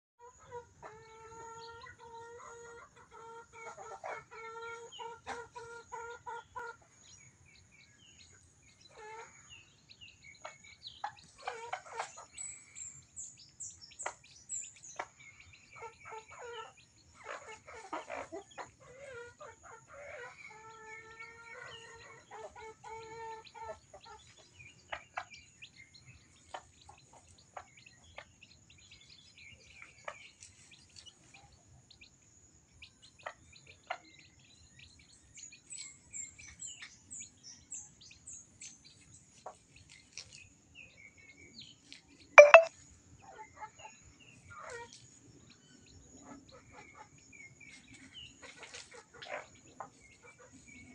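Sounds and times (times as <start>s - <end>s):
chickens clucking and calling: 0.2s - 32.1s, 45.9s - 50.9s
chicks chirping: 0.3s - 32.1s, 41.9s - 42.7s
thin high tone: 42.4s - 42.7s.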